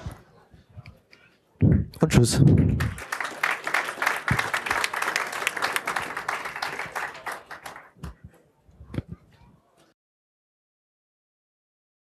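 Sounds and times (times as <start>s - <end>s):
microphone thumps and rustles: 1.6s - 3.0s
audience applause: 2.0s - 8.0s.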